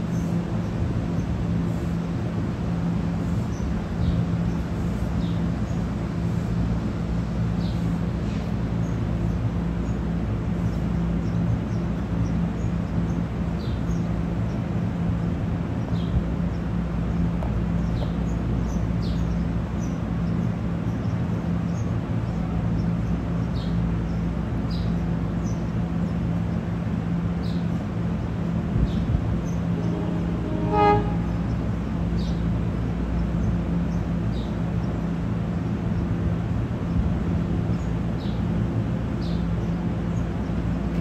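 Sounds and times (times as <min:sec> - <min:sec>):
steady low hum: 0:00.0 - 0:41.0
bird chirping: 0:28.8 - 0:32.5.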